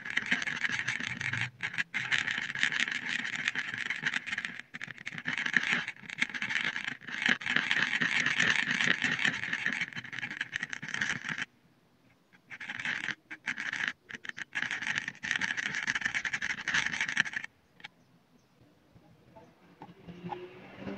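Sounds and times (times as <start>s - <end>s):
stick scraping thick paint: 0.0s - 11.5s, 12.4s - 17.5s.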